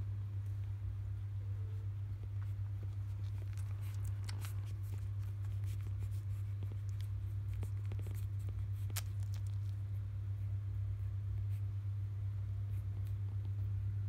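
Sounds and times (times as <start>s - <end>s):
steady low hum: 0.0s - 14.0s
puppies suckling wet clicks: 2.2s - 9.9s.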